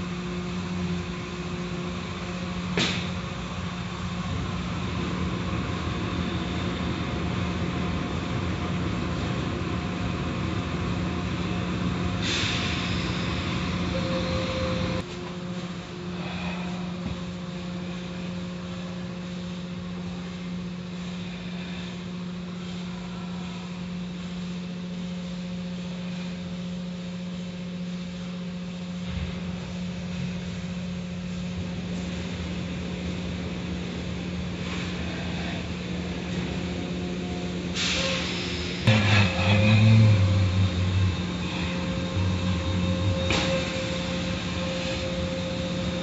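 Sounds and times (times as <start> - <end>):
car wash machine hum: 37.8 - 46.0.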